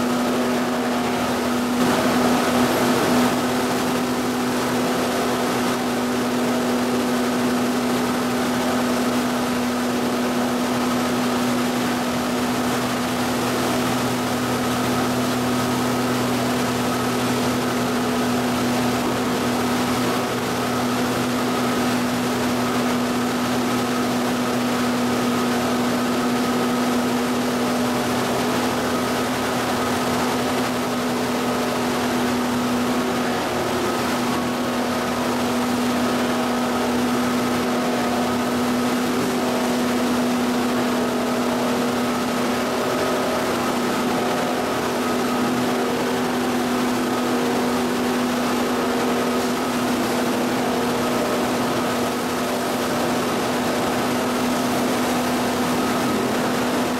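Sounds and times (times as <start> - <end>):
machine hum: 0.0 - 6.6
churning splashing water: 0.0 - 56.9.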